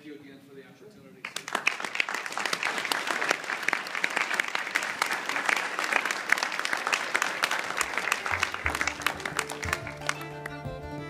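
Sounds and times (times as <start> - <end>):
audience applauding: 1.2 - 11.0
quiet music: 8.3 - 11.0.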